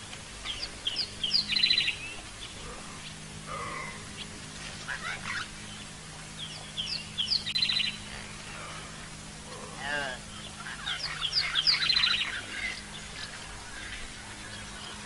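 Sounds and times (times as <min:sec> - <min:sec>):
faint low hum: 0:00.0 - 0:15.0
whistled bird call with rattling trill: 0:00.4 - 0:02.1, 0:06.4 - 0:08.1, 0:10.4 - 0:13.4.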